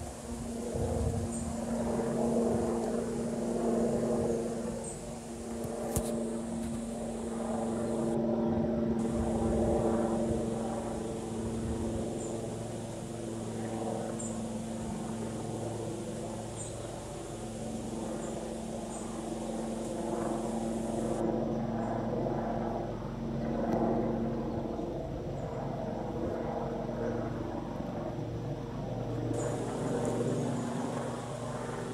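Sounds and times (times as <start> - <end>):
engine drone: 0.0 - 21.3, 29.1 - 31.9.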